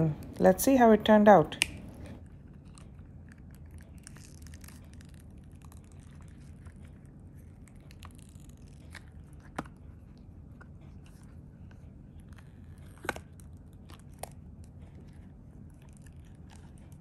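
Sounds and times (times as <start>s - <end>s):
resin crackling from silicone mold: 1.6s - 10.1s.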